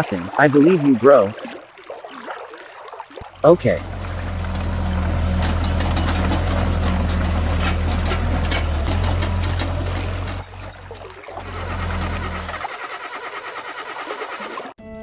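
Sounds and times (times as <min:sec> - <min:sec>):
simulated excavator engine idling: 0:03.4 - 0:14.7.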